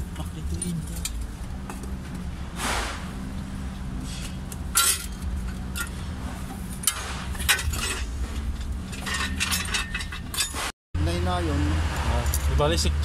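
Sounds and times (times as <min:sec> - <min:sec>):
metal tools clinking: 0:04.1 - 0:06.1, 0:06.7 - 0:10.7.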